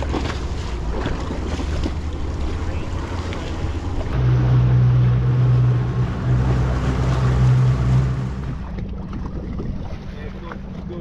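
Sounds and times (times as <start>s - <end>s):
outboard motors droning: 0.0s - 11.0s
water wash: 0.0s - 11.0s.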